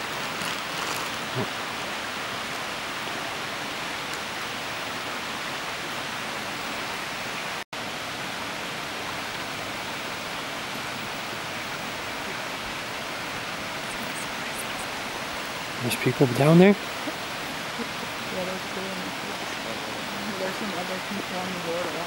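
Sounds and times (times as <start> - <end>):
rushing water hiss: 0.0 - 22.0.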